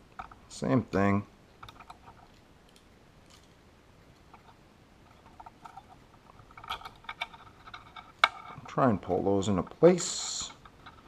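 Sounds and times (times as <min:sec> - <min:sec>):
pliers and wire clicking: 0:05.1 - 0:08.7.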